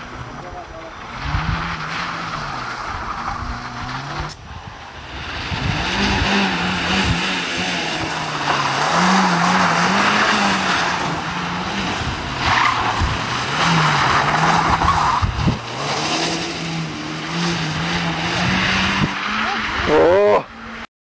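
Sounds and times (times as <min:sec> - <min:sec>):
car engine revving: 0:00.0 - 0:20.9
tyres skidding on loose surface: 0:05.0 - 0:20.0.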